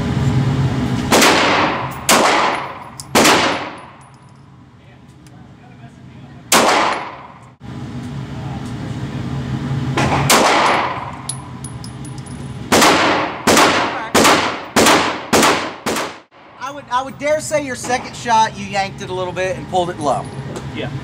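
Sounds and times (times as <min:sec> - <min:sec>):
pistol gunshots echoing indoors: 0:01.1 - 0:04.0, 0:12.7 - 0:16.3.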